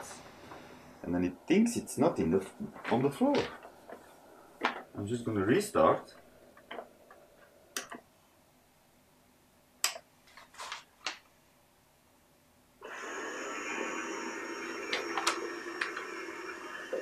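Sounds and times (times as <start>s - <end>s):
robot vacuum motor whining: 12.8s - 17.0s.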